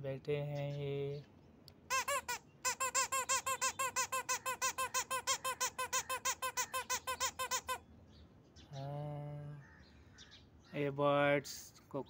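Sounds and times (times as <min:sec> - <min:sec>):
toy parrot squeaky chirps: 0:01.9 - 0:07.9.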